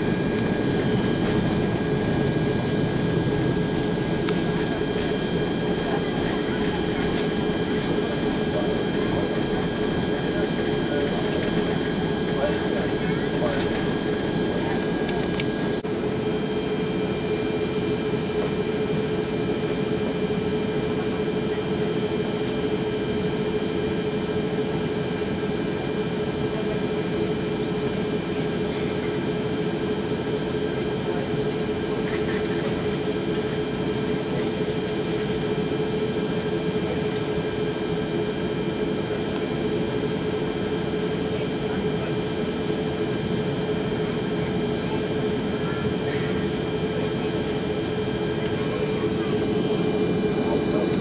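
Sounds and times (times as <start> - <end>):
airliner cabin engine drone: 0.0 - 51.0.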